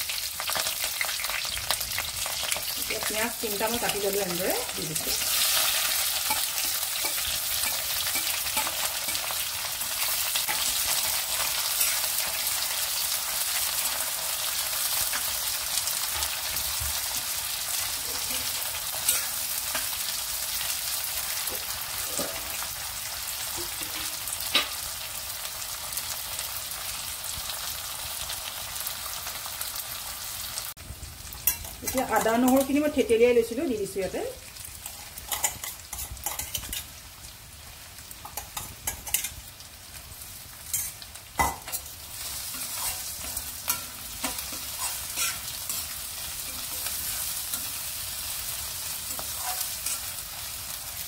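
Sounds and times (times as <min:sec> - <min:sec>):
onions sizzling in hot oil: 0:00.0 - 0:51.0
metal spoon clinking on pan: 0:05.0 - 0:12.3, 0:18.1 - 0:19.9, 0:34.8 - 0:36.9, 0:38.2 - 0:39.4, 0:40.7 - 0:47.8.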